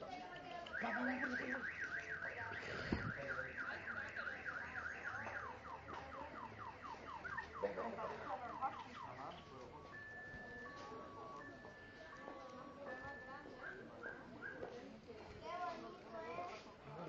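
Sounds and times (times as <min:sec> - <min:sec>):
car alarm warbling: 0:00.7 - 0:11.7.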